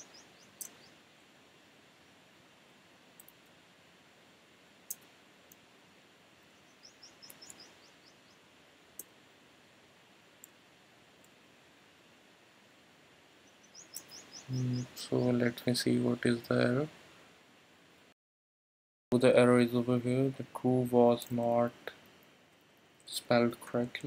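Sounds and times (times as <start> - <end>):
small bird chirping: 0.0 - 1.0, 6.5 - 9.1, 13.4 - 15.2.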